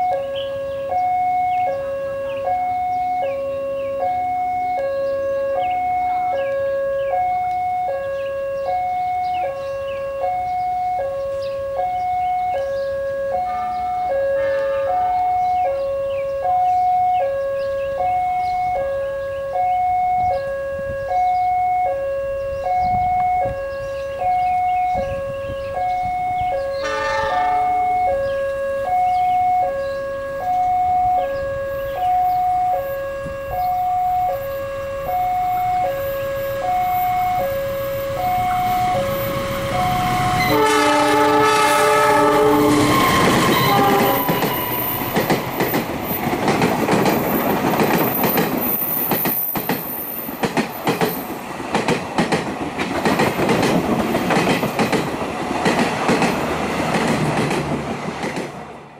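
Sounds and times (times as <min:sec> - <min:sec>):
two-tone crossing alarm: 0:00.0 - 0:57.6
short horn blast: 0:13.3 - 0:15.4, 0:26.7 - 0:29.2, 0:38.1 - 0:44.8.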